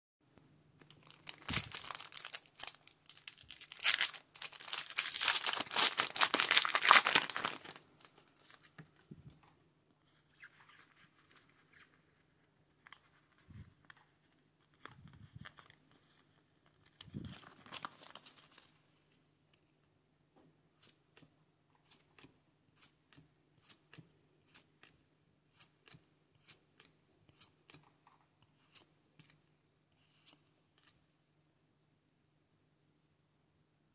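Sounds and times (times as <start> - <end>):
cards rustling: 0.9 - 9.0
foil wrapper tearing and crinkling: 1.0 - 7.8.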